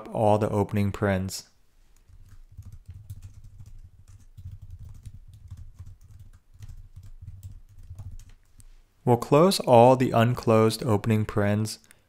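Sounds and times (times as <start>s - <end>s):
computer keyboard typing: 2.0s - 8.6s.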